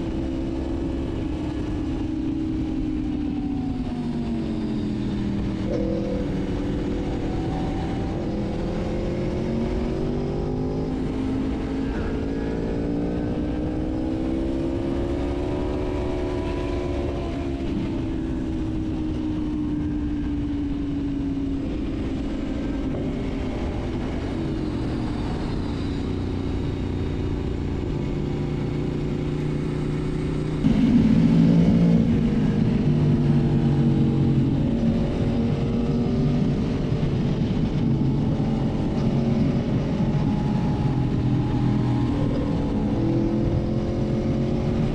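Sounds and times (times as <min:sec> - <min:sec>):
motorcycle engine revving: 0:00.0 - 0:44.9.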